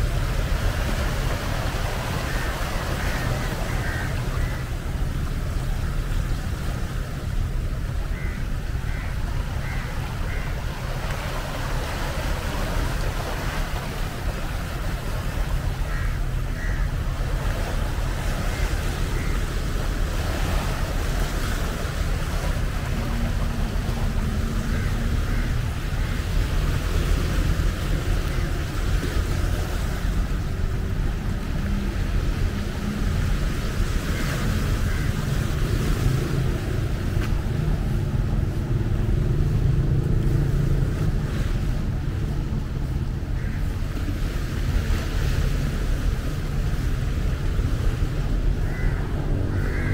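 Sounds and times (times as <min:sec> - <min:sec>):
waves breaking over rocks: 0:00.0 - 0:49.9
wind rumble on microphone: 0:00.0 - 0:49.9.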